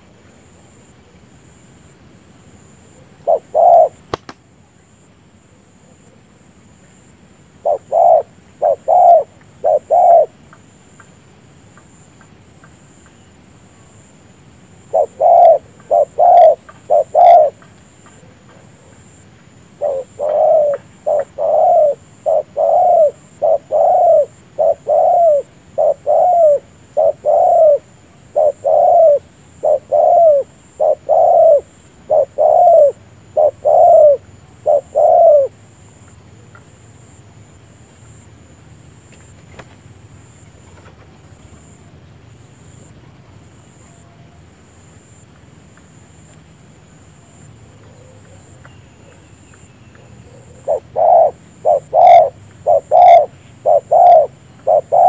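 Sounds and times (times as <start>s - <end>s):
dove cooing: 2.8s - 4.3s, 7.6s - 10.4s, 14.8s - 19.2s, 19.8s - 35.6s, 47.7s - 49.2s, 49.9s - 55.0s.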